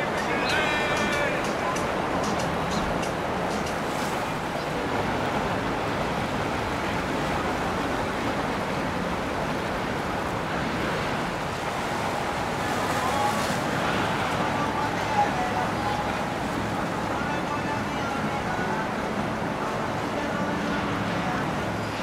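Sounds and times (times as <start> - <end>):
faint boat engine hum: 0.0 - 22.0
water rushing: 0.0 - 22.0.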